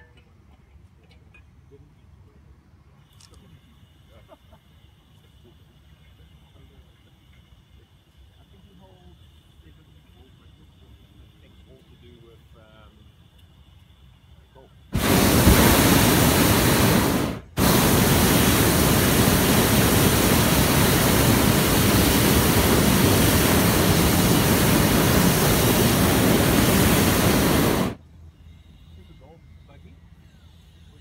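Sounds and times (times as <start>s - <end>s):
propane burner firing: 5.4s - 28.0s.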